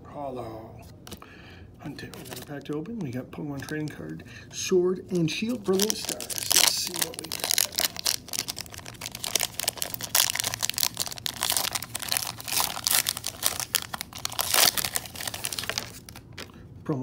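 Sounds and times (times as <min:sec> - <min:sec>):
foil wrapper crinkling and tearing: 0:05.4 - 0:16.5.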